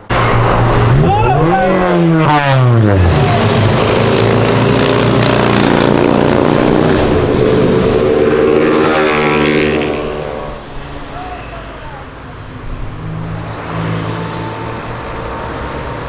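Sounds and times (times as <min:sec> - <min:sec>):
sports car accelerating past: 0:00.1 - 0:10.7.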